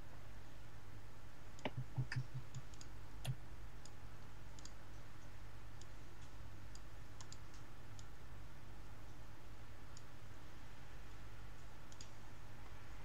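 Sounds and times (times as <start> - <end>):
steady low hum: 0.0 - 13.0
computer mouse clicking: 1.6 - 4.8, 5.8 - 8.1, 11.9 - 12.2.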